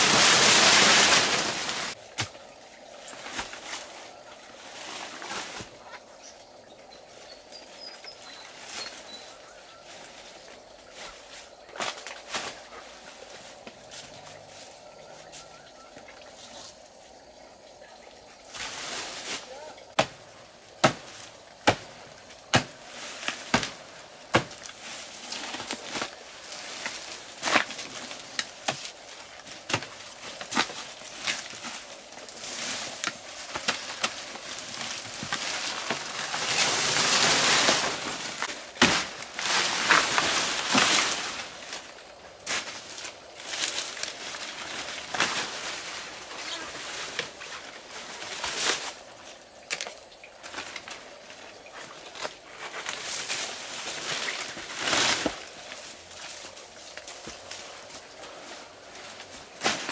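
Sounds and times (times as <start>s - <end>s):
loud leaf rustling: 0.0s - 2.3s, 2.9s - 6.1s, 18.4s - 59.9s.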